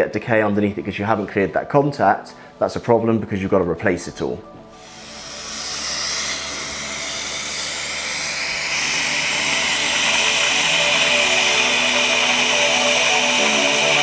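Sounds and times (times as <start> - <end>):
dental drill whining: 4.7 - 14.0.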